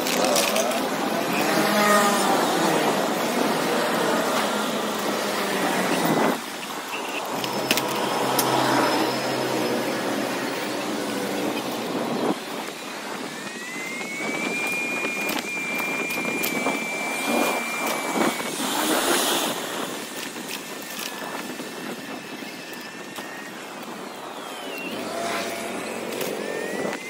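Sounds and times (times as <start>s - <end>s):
city traffic: 0.0s - 14.2s, 15.2s - 27.0s
high steady whine: 0.0s - 27.0s
sharp clicks: 13.4s - 27.0s.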